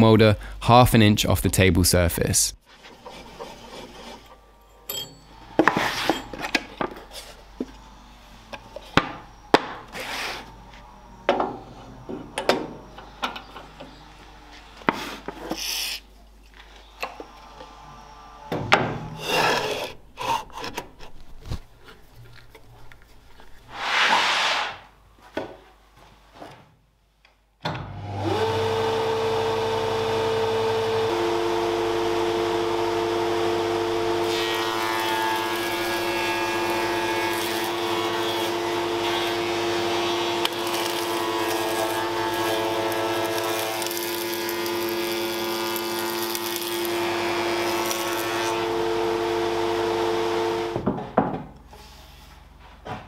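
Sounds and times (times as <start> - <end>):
wood scraping against machine: 2.7 - 4.5.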